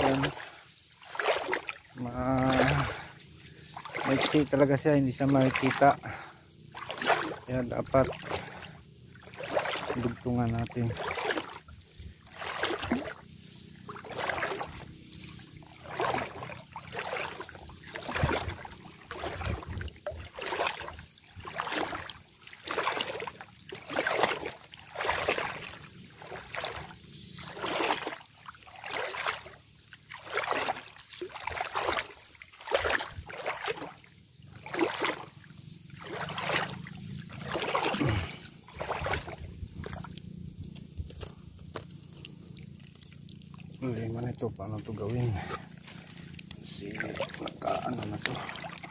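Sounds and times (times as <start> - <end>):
footsteps wading through water: 0.0 - 48.9.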